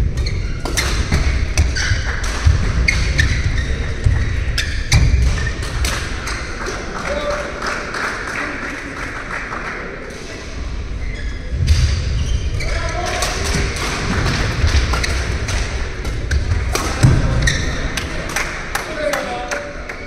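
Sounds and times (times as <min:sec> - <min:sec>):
shoes squeaking: 0:00.1 - 0:06.5, 0:14.8 - 0:17.9.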